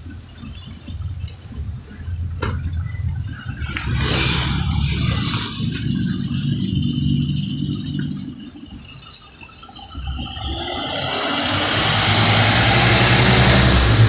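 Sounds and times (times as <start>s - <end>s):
bus diesel engine running: 0.0s - 14.0s
loud air hiss: 10.5s - 14.0s.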